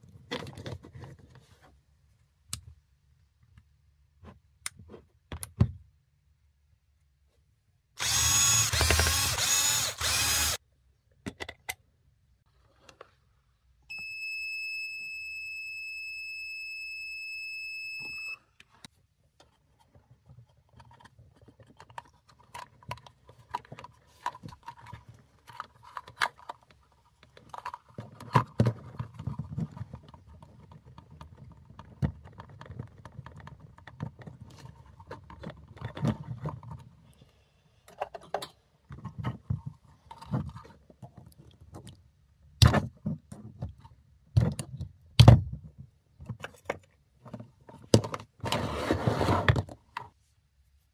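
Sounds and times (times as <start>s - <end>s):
cordless drill running: 8.0s - 10.6s
plastic parts clicking and rattling: 19.4s - 37.1s, 37.8s - 42.0s.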